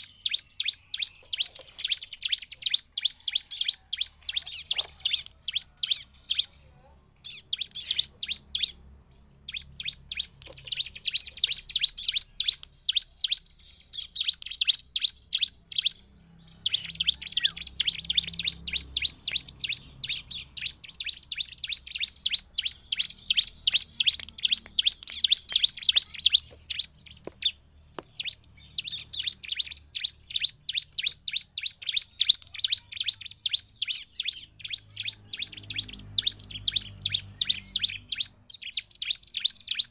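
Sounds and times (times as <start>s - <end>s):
bird singing high chirps: 0.0s - 39.9s.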